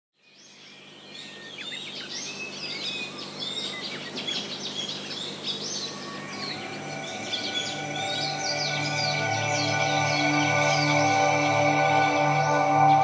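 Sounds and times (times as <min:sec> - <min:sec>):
birds chirping: 0:00.2 - 0:13.0
music: 0:05.8 - 0:13.0.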